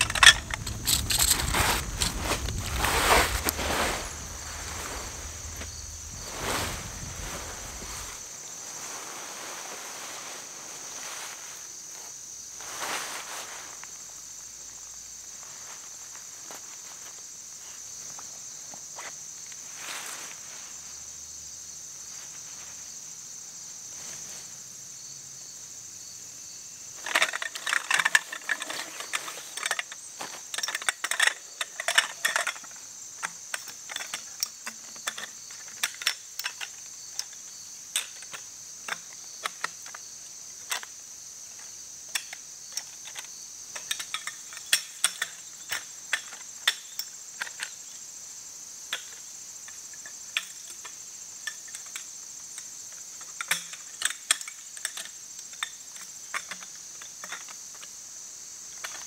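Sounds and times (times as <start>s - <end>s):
tent poles clattering and clicking: 0.0s - 8.2s, 27.0s - 48.0s, 48.9s - 58.0s, 58.7s - 59.0s
buzzing insect chorus: 0.0s - 59.0s.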